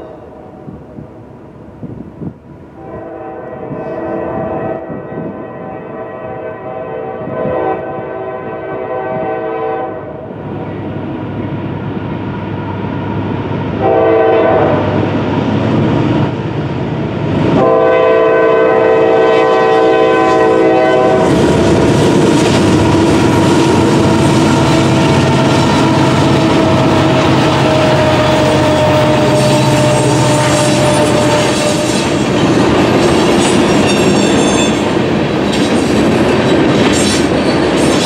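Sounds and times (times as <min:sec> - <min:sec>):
train horn blasts: 0:02.8 - 0:10.3, 0:13.8 - 0:15.1, 0:17.6 - 0:21.4, 0:22.8 - 0:32.4
locomotive engine rumble: 0:19.9 - 0:38.0.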